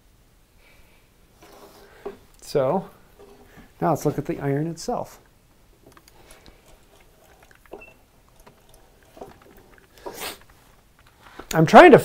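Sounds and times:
short hiss: 10.0 - 10.6.

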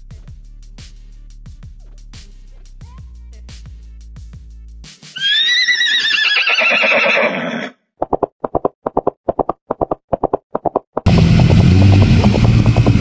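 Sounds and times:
horse whinnying: 5.2 - 7.8.

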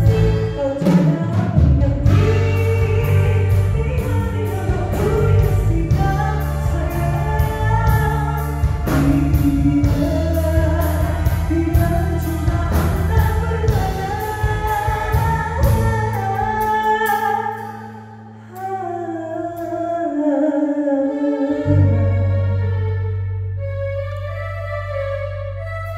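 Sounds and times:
drums: 0.0 - 17.9
bass guitar: 0.0 - 18.8, 21.6 - 25.9.

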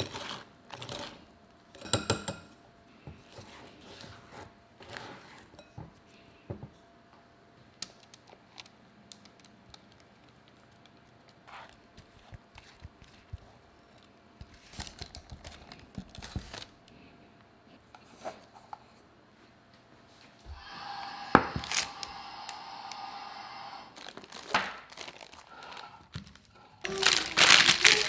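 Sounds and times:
parchment paper crinkling: 8.0 - 16.8, 23.9 - 28.0
steady hum: 20.4 - 24.4.

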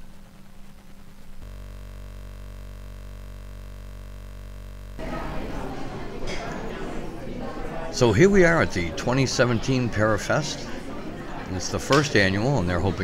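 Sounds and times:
electrical hum: 0.0 - 6.2
noisy room sound: 0.0 - 13.0.

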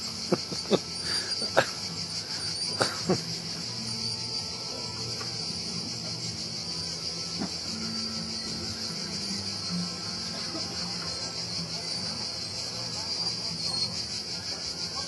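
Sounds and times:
faint low music: 0.0 - 15.0
high-pitched insect drone: 0.0 - 15.0.

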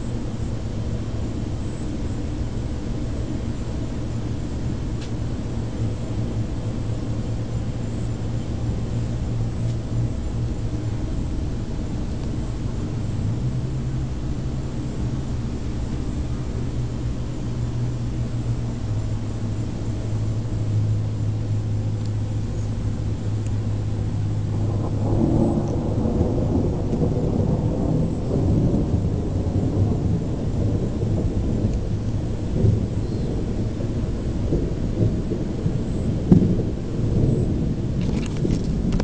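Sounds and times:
steady low hum: 0.0 - 39.0
thunder rumbling: 0.0 - 39.0.

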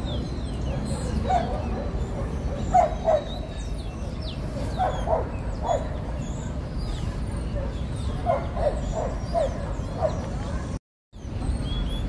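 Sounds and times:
faint high bird chirps: 0.0 - 12.0
dog barking: 0.7 - 3.5, 4.6 - 6.2, 7.6 - 10.7.

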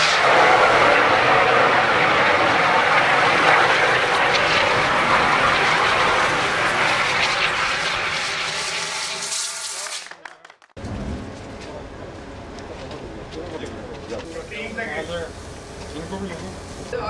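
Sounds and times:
fire extinguisher hissing: 4.1 - 10.0, 14.4 - 17.0.

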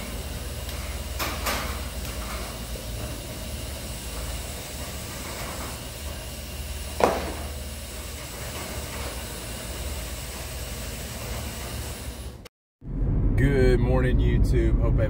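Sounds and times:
garage door opener humming: 0.0 - 12.5
sharp thump: 7.0 - 7.5.

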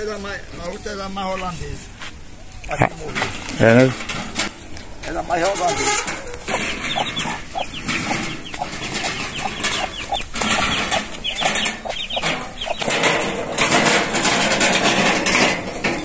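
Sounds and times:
birds chirping: 3.9 - 14.5.

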